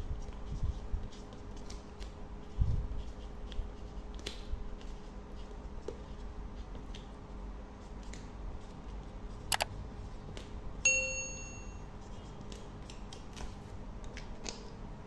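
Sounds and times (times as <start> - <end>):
bell-like ding: 10.9 - 11.8.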